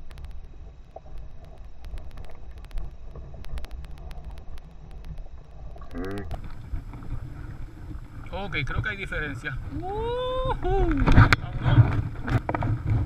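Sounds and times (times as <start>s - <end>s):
wind rumbling on microphone: 6.1s - 13.0s.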